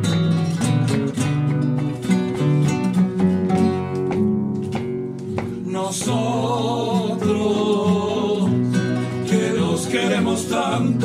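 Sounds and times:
acoustic guitars playing bolero: 0.0s - 11.0s
person singing with vibrato: 5.6s - 11.0s.

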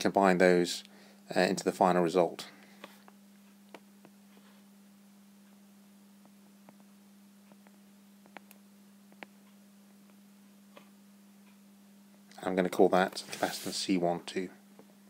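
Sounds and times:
steady hum: 0.0s - 15.0s
stylus tapping on screen: 7.4s - 9.4s.

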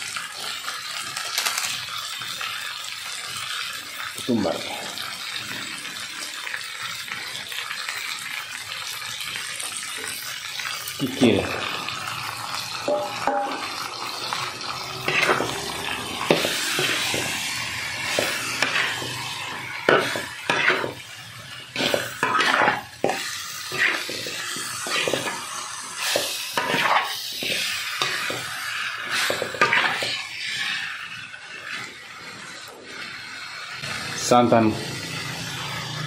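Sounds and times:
food sizzling: 0.0s - 36.0s
metal spatula scraping wok: 11.2s - 36.0s.

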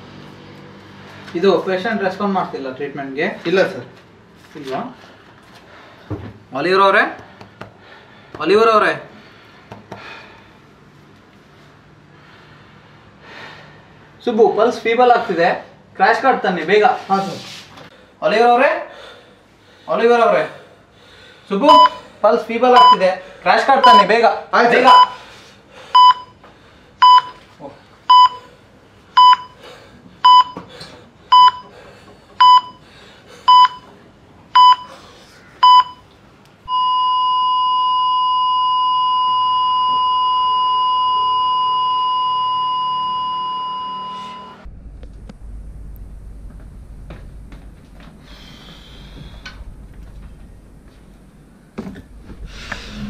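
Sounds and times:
heart monitor beeping: 21.7s - 22.0s, 22.8s - 23.0s, 23.8s - 24.1s, 26.0s - 26.4s, 27.0s - 27.4s, 28.1s - 28.5s, 29.2s - 29.6s, 30.2s - 30.7s, 31.3s - 31.7s, 32.4s - 32.8s, 33.5s - 34.0s, 34.6s - 34.9s, 35.6s - 36.1s, 36.7s - 44.7s
low hum: 36.6s - 53.0s
continuous flatline tone: 36.7s - 53.0s.

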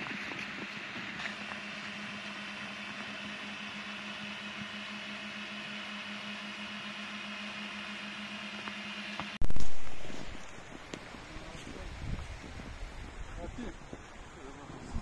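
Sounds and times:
steady machine hum: 0.0s - 13.2s.

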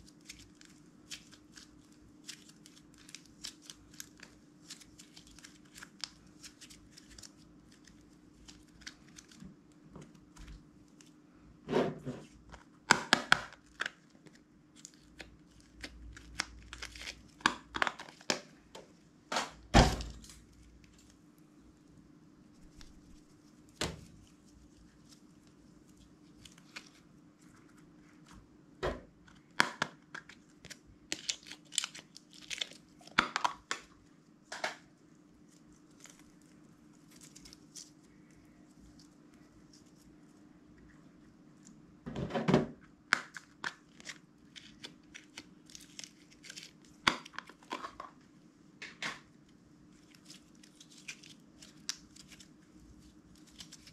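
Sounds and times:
slime squishing: 0.0s - 11.2s, 12.2s - 18.6s, 35.3s - 41.8s, 43.1s - 48.0s, 49.9s - 53.9s.

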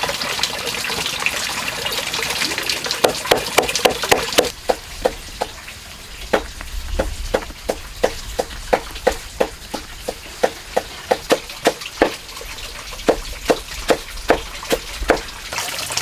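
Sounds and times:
cleaver chopping on wooden board: 3.0s - 5.5s, 6.3s - 12.2s, 13.1s - 15.2s.

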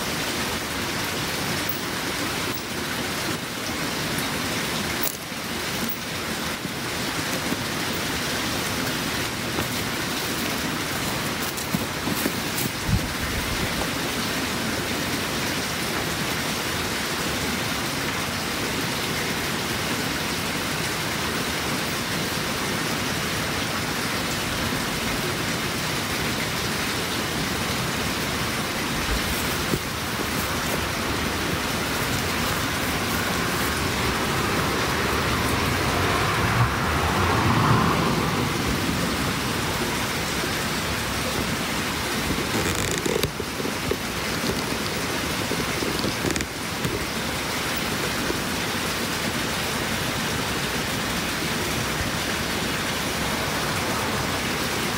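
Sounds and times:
steady hiss: 0.0s - 35.9s.

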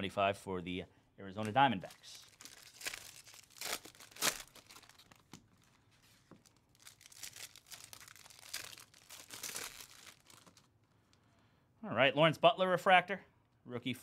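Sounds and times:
foil wrapper crinkling and tearing: 2.0s - 10.7s.

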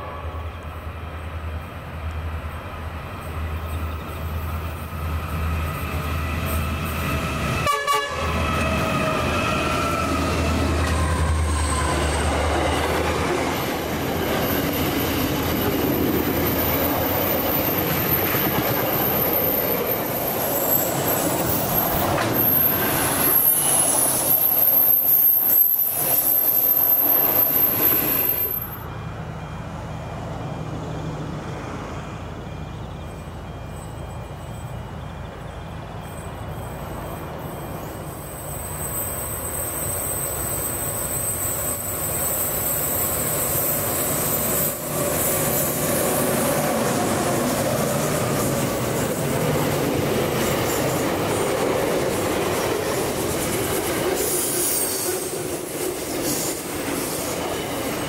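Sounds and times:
train horn: 0.0s - 0.6s, 7.6s - 10.5s
train wagons rumbling: 0.0s - 58.0s
high wheel squeal: 8.3s - 29.0s, 30.2s - 58.0s.

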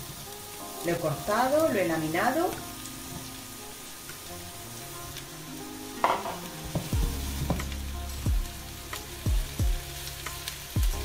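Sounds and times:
mushrooms sizzling in a pan: 0.0s - 11.0s
pan knocking on hob: 6.0s - 7.7s.

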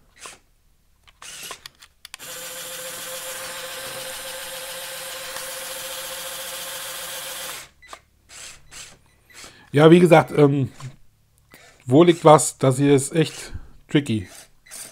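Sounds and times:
toy motors whirring: 0.2s - 0.4s, 1.1s - 9.6s, 14.2s - 14.9s.

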